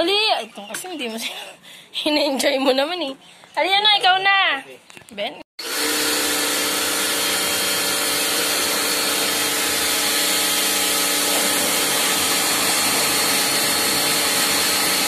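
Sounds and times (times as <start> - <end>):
pressure washer motor humming: 5.6 - 15.0
water jet hissing: 5.6 - 15.0.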